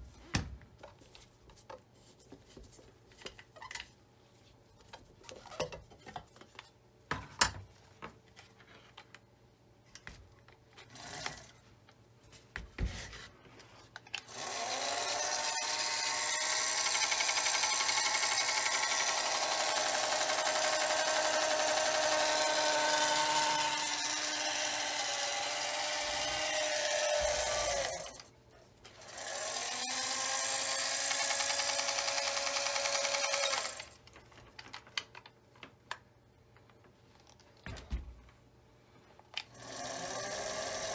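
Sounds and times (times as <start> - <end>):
small electric motor running: 14.3 - 28.3, 29.0 - 34.0, 39.5 - 40.9.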